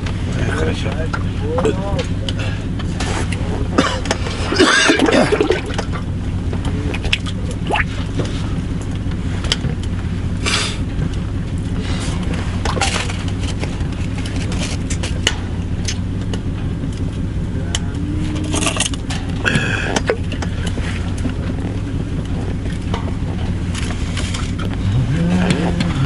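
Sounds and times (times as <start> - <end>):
low mechanical hum: 0.0 - 26.0
clicks and rustles of handling: 10.9 - 24.9.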